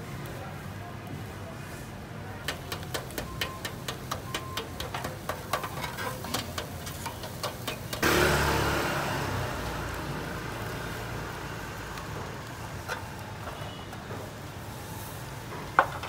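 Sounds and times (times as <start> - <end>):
charcoal fire crackling: 0.0 - 16.0
sudden loud rush of noise: 8.0 - 12.5.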